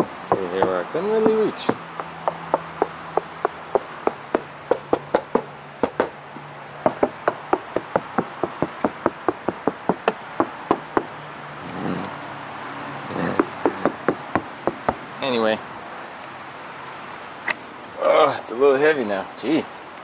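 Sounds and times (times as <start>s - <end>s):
knuckles knocking on car trunk lid: 0.0s - 6.1s, 6.8s - 11.1s, 13.3s - 15.0s.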